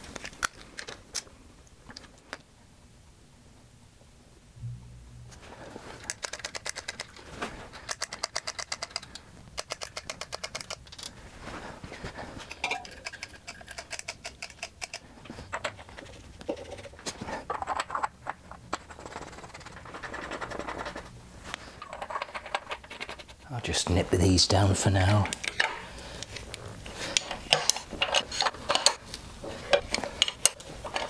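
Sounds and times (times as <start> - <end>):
small metallic clicks and rattles: 6.0 - 11.2, 12.4 - 23.4, 25.2 - 31.0.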